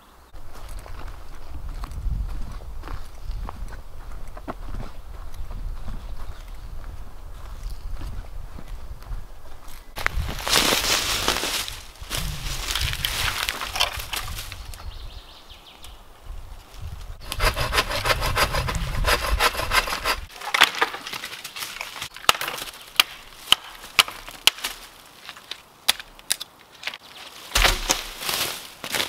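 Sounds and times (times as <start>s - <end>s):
dry branches snapping: 10.0s - 14.8s, 19.8s - 29.0s
hand saw strokes: 17.2s - 20.3s.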